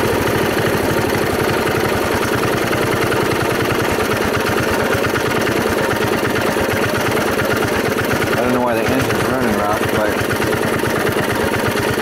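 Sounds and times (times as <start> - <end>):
gasoline engine running steadily: 0.0 - 12.0.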